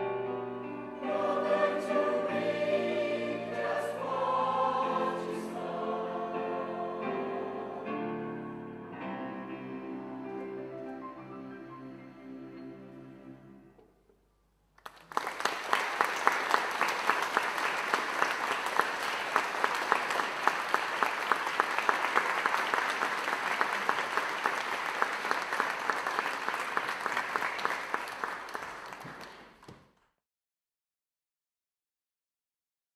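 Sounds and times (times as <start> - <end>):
audience applauding: 14.8 - 29.9.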